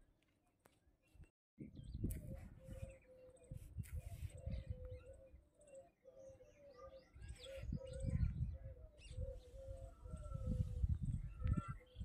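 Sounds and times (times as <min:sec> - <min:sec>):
bird chirps: 0:01.0 - 0:12.0
birds cooing: 0:02.2 - 0:12.0.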